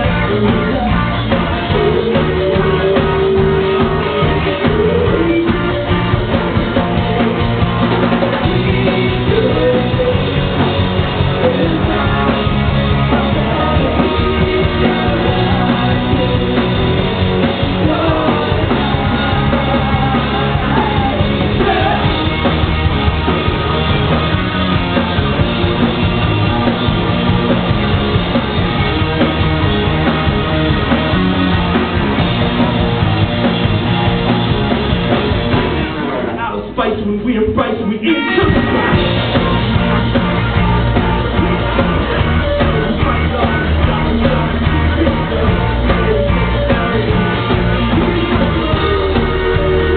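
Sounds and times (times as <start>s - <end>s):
person singing: 0.0s - 22.4s, 38.1s - 49.9s
electric guitar: 0.0s - 36.8s, 38.1s - 49.9s
electric bass: 0.0s - 49.9s
rock band playing live: 0.0s - 49.9s.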